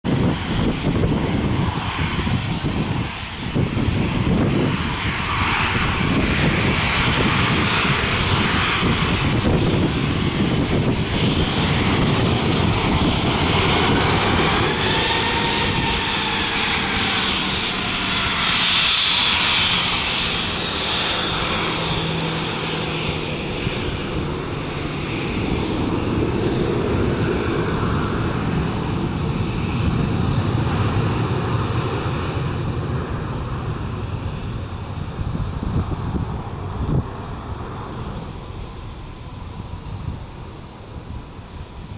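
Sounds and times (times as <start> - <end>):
jet engines whining: 0.1 - 41.9.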